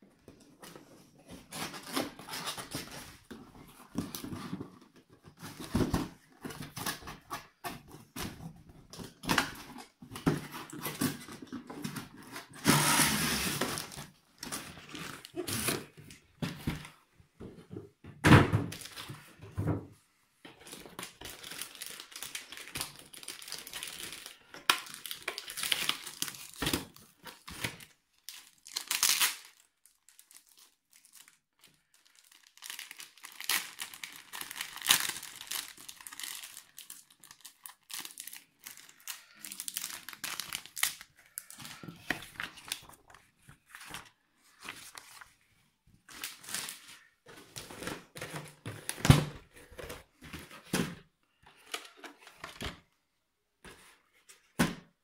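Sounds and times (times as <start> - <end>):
plastic film crinkling: 21.0 - 45.4.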